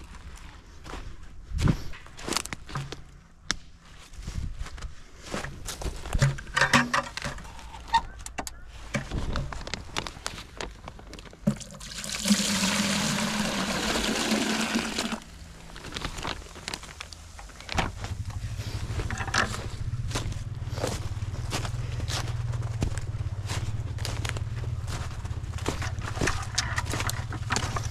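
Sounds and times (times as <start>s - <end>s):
plastic bag rustling: 9.1s - 19.7s
sap pouring into plastic bucket: 11.4s - 15.4s.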